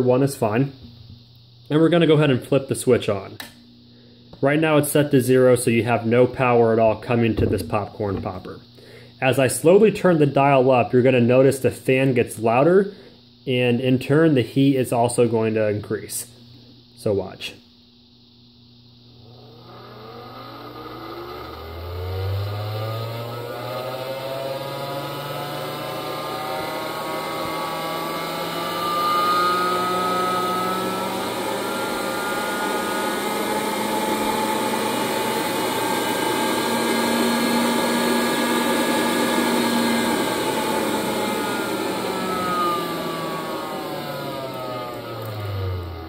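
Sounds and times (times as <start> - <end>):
popcorn popper fan whirring: 19.0 - 46.0.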